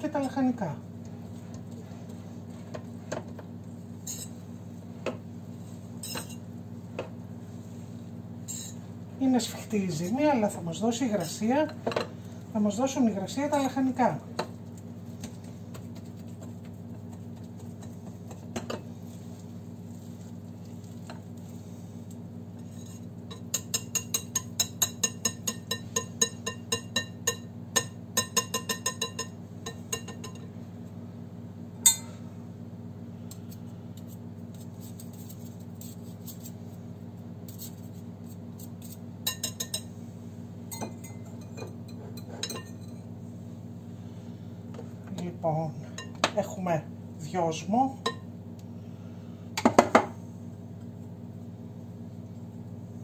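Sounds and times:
whisk clinking in glass bowl: 23.3 - 30.4.

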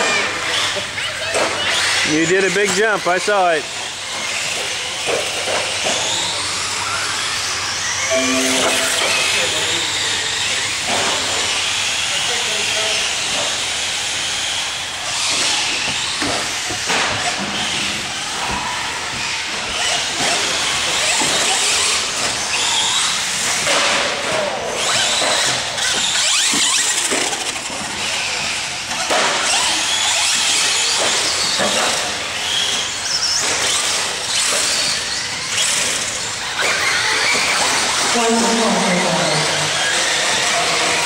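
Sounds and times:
rc truck motor whining: 10.1 - 23.6, 24.5 - 41.0.

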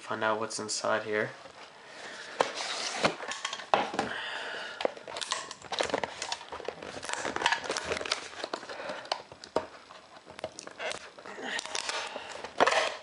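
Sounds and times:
packaging crinkling and rustling: 4.9 - 13.0.

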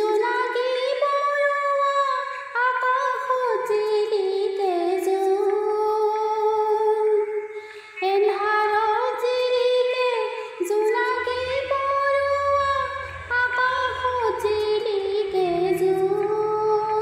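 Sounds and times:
woman singing: 0.0 - 17.0
low steady drone: 9.8 - 17.0.

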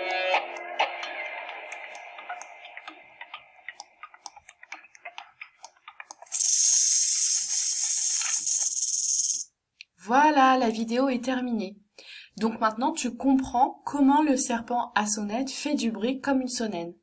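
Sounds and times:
faint music: 0.0 - 5.7
rattlesnake rattling: 6.2 - 9.5.

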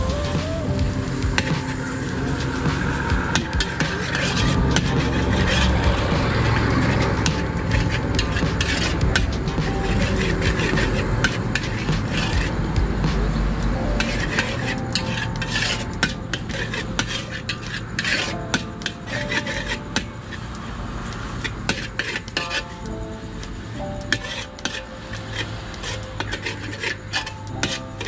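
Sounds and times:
steady low rumble: 0.0 - 24.2
metal spatula scraping a wok: 9.8 - 12.4, 14.0 - 20.5, 21.2 - 22.8, 24.1 - 28.0.

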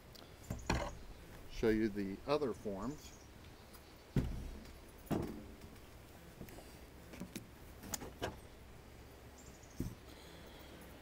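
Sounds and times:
dull thumps: 4.1 - 5.8.

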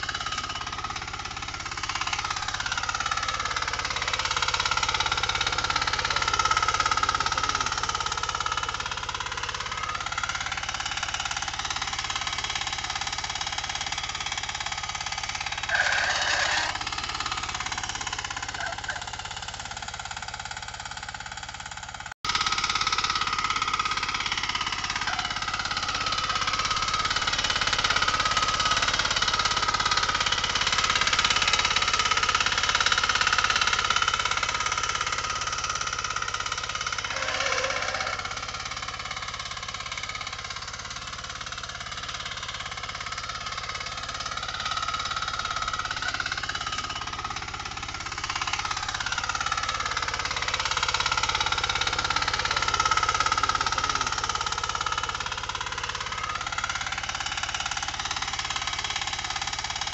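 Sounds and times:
power tiller engine chugging: 0.0 - 59.9
tines clattering through soil: 15.5 - 17.4, 35.2 - 39.1.

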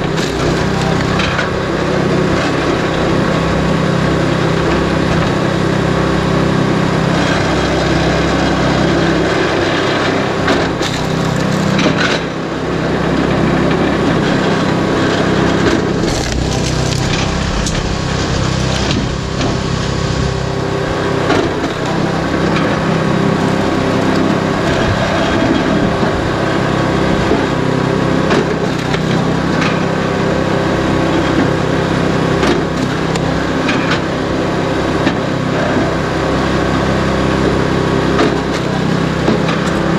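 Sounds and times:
wood cracking and splintering: 0.0 - 1.7, 8.6 - 12.5, 13.5 - 26.4
small gasoline engine running: 0.0 - 39.9.

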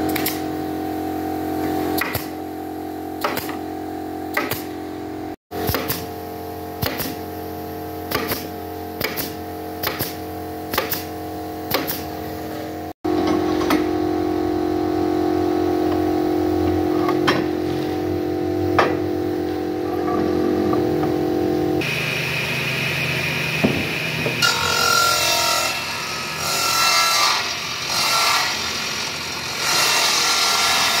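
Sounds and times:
nail gun firing: 0.1 - 0.5, 2.0 - 2.4, 3.2 - 3.6, 4.3 - 4.7, 5.6 - 6.2, 6.8 - 7.2, 8.1 - 12.1.

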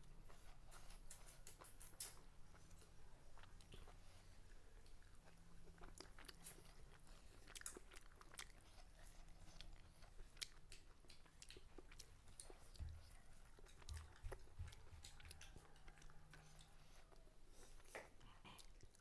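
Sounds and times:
person chewing food: 0.0 - 19.0.

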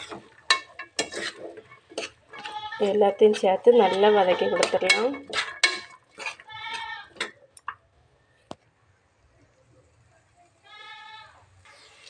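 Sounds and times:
metal spoon scraping a pot: 0.0 - 7.4.

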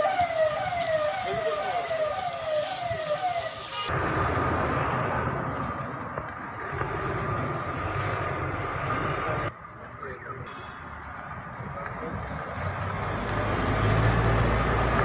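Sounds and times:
siren whooping: 0.0 - 3.9
car driving past: 12.4 - 15.0.

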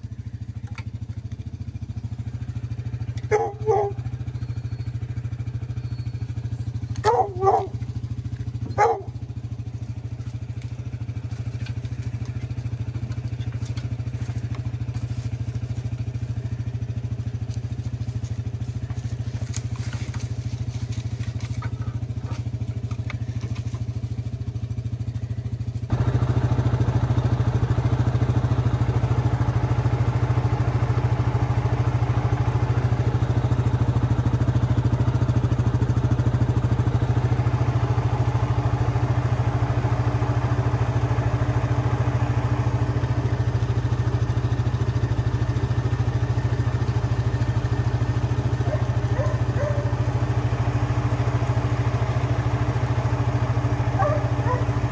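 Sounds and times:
quad engine idling: 0.0 - 54.9.

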